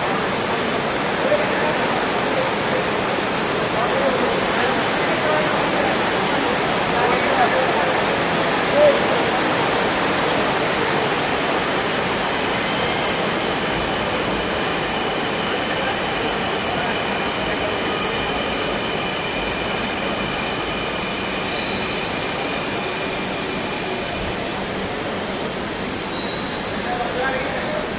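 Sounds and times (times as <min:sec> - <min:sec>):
train wheels rushing on rail: 0:00.0 - 0:27.9
high-pitched brake squeal: 0:14.6 - 0:27.9.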